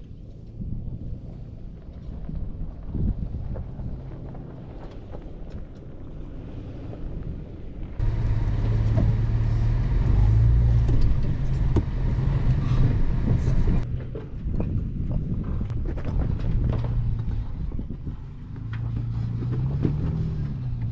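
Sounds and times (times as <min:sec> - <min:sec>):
truck engine running: 0:08.0 - 0:13.8.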